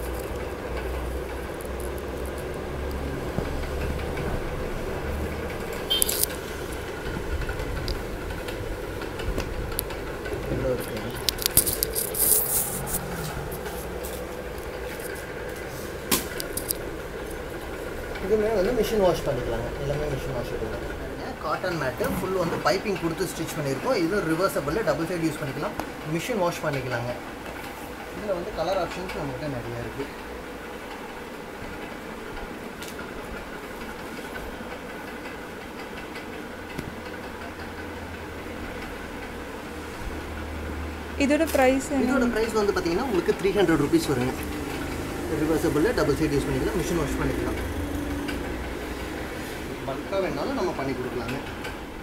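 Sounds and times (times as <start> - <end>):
fan whirring with low hum: 0.0 - 52.0
cotton mats scraping together: 10.7 - 16.4.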